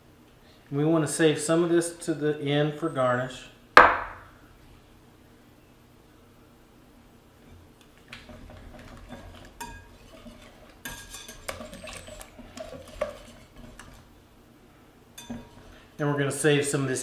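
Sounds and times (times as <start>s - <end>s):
whisk scraping glass bowl: 8.2s - 14.1s, 15.2s - 16.0s.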